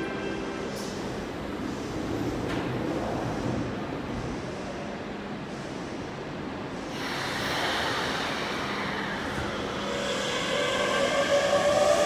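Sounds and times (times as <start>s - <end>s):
rush of train noise: 0.0s - 12.0s
train motors whining: 8.4s - 12.0s.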